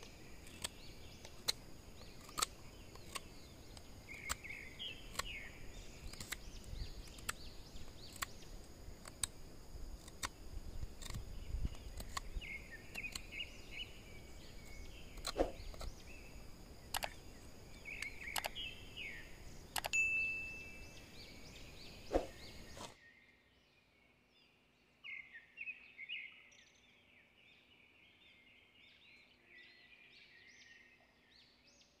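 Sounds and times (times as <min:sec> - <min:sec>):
sharp clicks: 0:00.0 - 0:13.8, 0:14.6 - 0:20.0
high insect trill: 0:00.0 - 0:22.9
birds chirping: 0:00.0 - 0:31.7.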